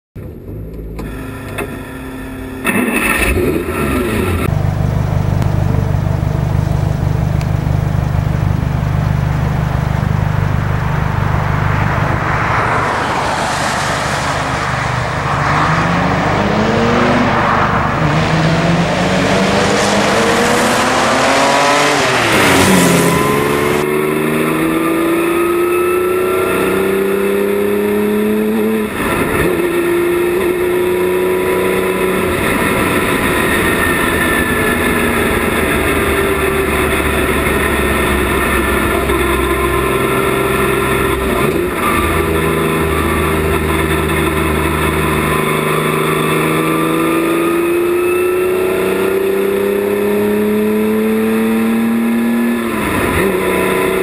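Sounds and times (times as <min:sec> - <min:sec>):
race car engine revving: 0:00.7 - 0:54.0
race car passing by: 0:10.9 - 0:29.4.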